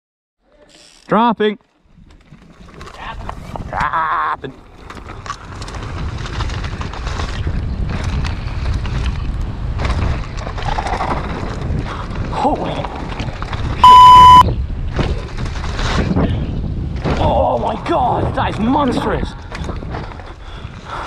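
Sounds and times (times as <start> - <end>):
tyres rumbling over dirt: 4.5 - 21.0
bike knocks and rattles: 4.8 - 11.9
wind buffeting microphone: 5.0 - 21.0
loud electronic beep: 13.8 - 14.4.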